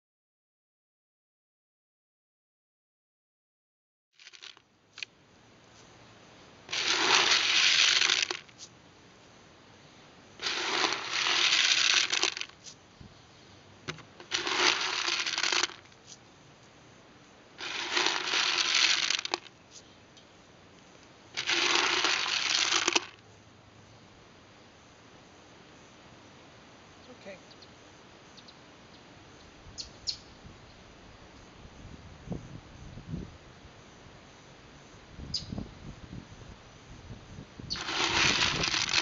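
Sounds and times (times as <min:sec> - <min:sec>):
corn kernels rattling in a bucket: 0:04.2 - 0:05.1, 0:06.7 - 0:08.6, 0:10.4 - 0:12.6, 0:14.2 - 0:16.0, 0:17.6 - 0:19.5, 0:21.4 - 0:23.2, 0:37.7 - 0:39.0.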